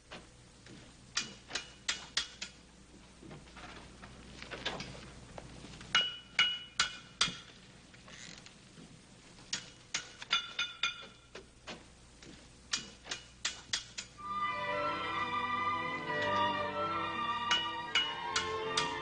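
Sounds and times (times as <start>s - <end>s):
hammer striking metal: 5.9s - 7.5s, 9.5s - 11.3s, 17.5s - 19.0s.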